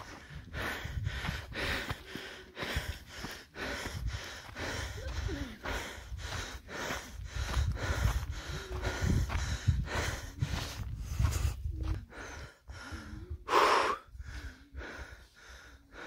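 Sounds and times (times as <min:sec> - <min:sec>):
person panting hard: 0:00.0 - 0:16.0.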